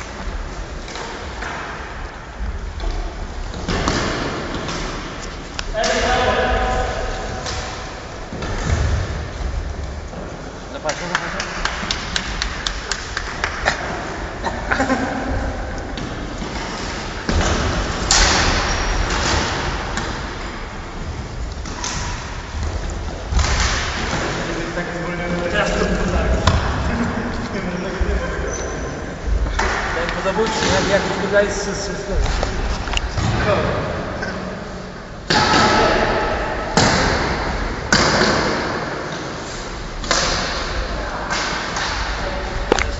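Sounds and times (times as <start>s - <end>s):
footsteps in sports hall: 0.0s - 34.6s
sharp crack: 15.8s - 26.8s.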